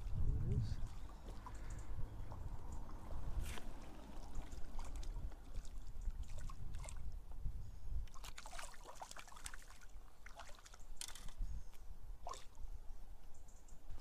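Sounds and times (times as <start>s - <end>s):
low steady rumble: 0.0s - 8.1s
stream water splashing: 0.9s - 7.2s, 8.1s - 11.4s, 12.2s - 12.7s.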